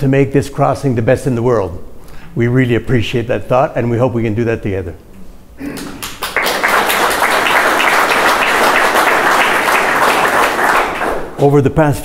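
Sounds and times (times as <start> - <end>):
audience applauding: 5.6 - 11.4.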